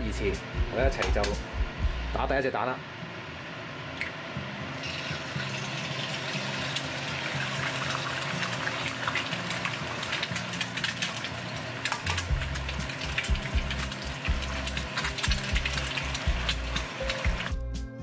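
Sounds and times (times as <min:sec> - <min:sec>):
egg frying in hot oil: 0:04.8 - 0:17.6.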